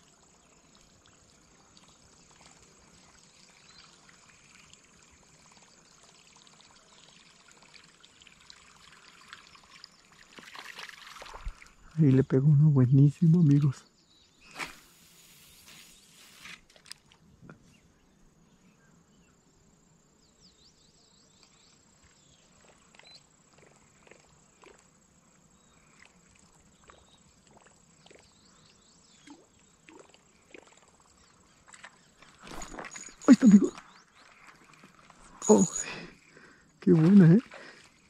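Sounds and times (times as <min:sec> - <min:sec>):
faint high chirps: 0:31.2 - 0:36.7.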